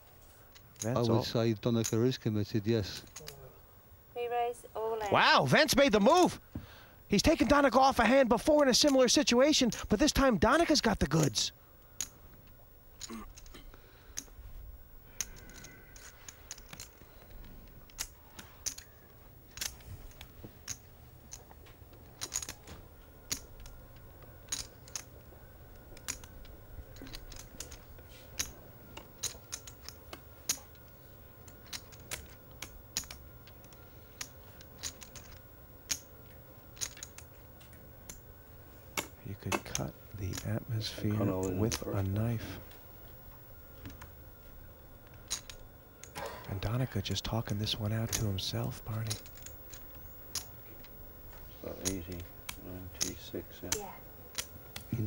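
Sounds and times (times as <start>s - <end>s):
faint low hum: 0.0s - 55.0s
poker chips clicking: 26.0s - 27.8s, 31.6s - 36.0s, 36.8s - 37.4s, 47.5s - 50.9s.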